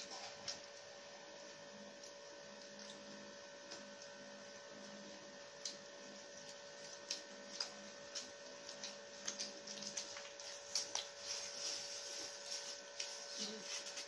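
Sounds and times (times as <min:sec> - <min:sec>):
electrical hum: 0:00.0 - 0:14.0
biting and chewing: 0:05.6 - 0:11.2.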